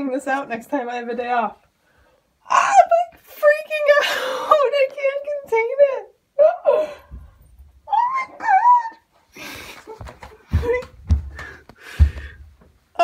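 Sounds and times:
woman squealing: 7.9s - 9.1s
heavy low thumps: 10.4s - 12.7s.

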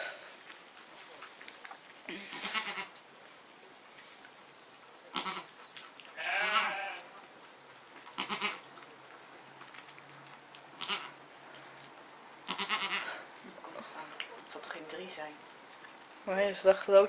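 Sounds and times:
rustling: 0.0s - 17.0s
goat bleating: 2.3s - 3.0s, 5.1s - 5.5s, 6.2s - 7.1s, 8.2s - 8.6s, 10.8s - 11.2s, 12.4s - 13.2s.

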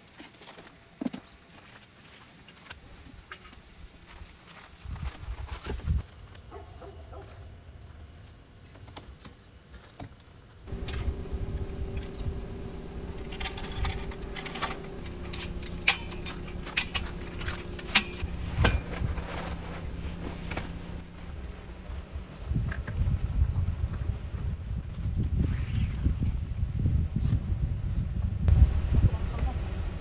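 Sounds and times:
clicks and rattles of parts: 10.7s - 21.0s
faint hum: 10.7s - 23.4s.

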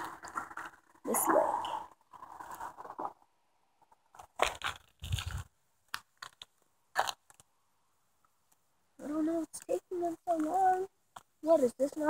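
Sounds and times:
footsteps on gritty asphalt: 4.2s - 7.2s.

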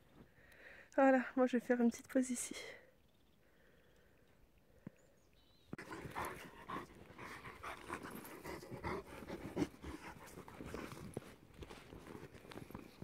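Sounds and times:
dog panting: 5.8s - 11.8s.

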